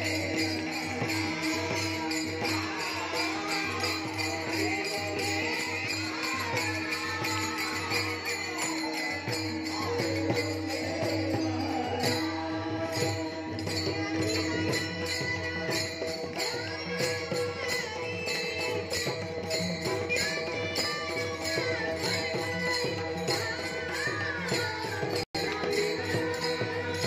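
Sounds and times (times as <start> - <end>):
young man singing: 0.0 - 15.7
hand cymbals struck: 0.0 - 27.0.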